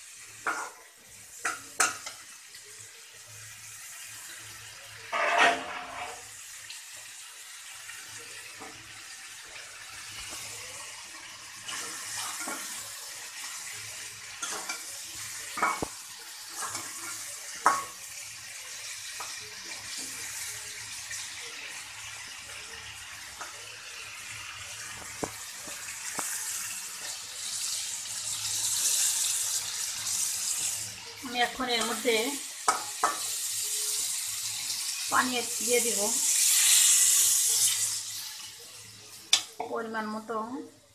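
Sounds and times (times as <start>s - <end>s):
fish sizzling in oil: 0.0s - 40.9s
metal spatula scraping pan: 5.1s - 6.3s.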